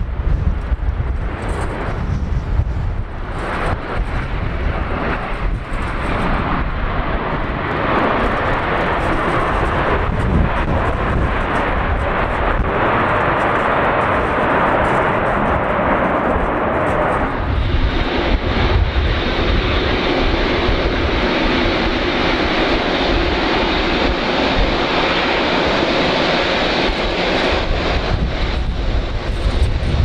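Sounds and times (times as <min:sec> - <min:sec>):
jet engines roaring: 0:00.0 - 0:30.0
wind buffeting microphone: 0:00.0 - 0:30.0.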